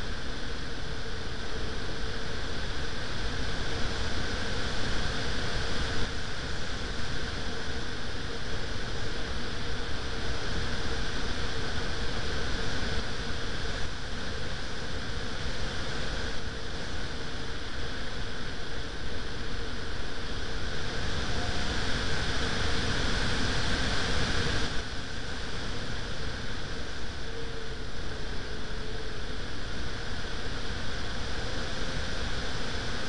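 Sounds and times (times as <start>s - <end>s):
faint steady hum: 0.0s - 33.0s
wind rushing on microphone: 0.0s - 33.0s.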